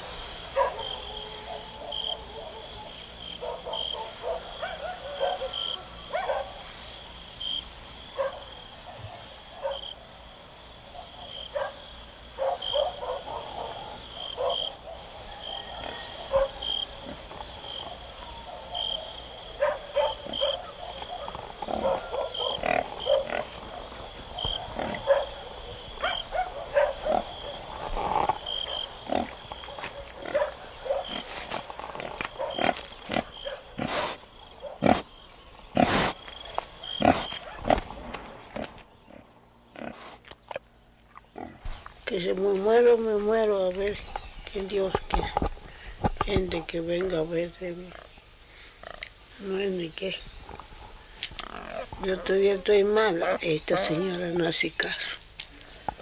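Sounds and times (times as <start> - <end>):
pigs grunting and squealing: 15.4 - 18.2, 20.1 - 35.1, 35.7 - 36.2, 36.9 - 40.2, 50.5 - 52.3
steady high chirp: 54.9 - 55.8.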